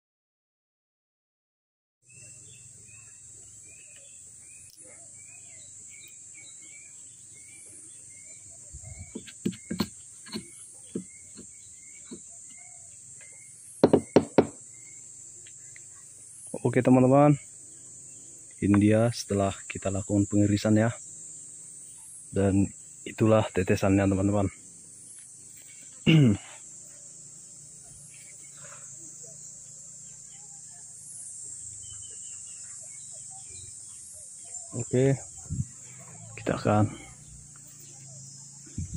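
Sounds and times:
faint bird chirps: 2.0s - 38.9s
high insect drone: 2.1s - 38.9s
sharp knocks and taps: 9.1s - 12.3s, 13.8s - 14.6s.

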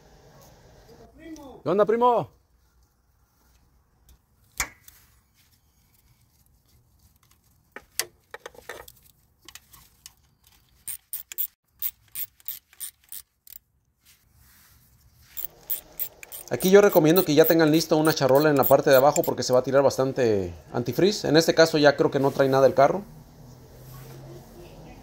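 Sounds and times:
ratchet wrench clicking: 10.8s - 13.7s, 15.4s - 19.6s.

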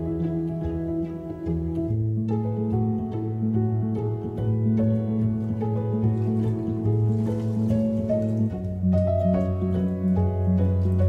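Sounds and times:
plucked string notes: 0.0s - 11.0s.

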